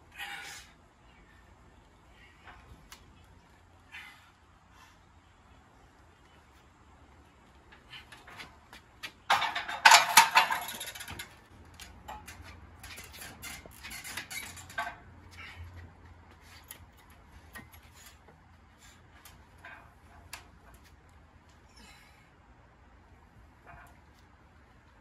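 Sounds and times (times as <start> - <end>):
weight plates clinking: 9.3 - 11.3.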